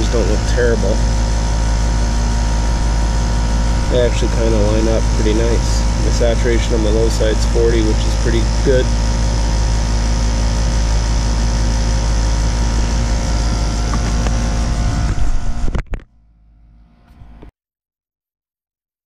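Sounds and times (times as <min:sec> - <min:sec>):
air conditioner unit humming: 0:00.0 - 0:17.4.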